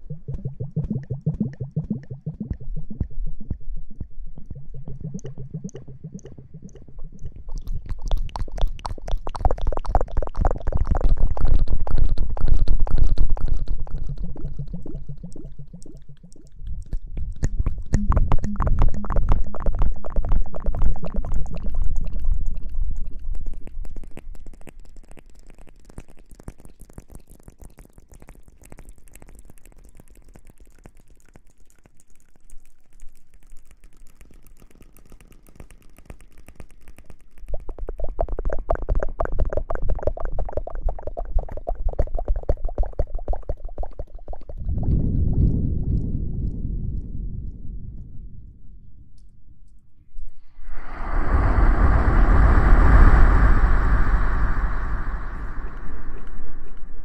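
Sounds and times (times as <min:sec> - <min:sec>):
handling rumble at microphone: 0:50.5 - 0:57.0.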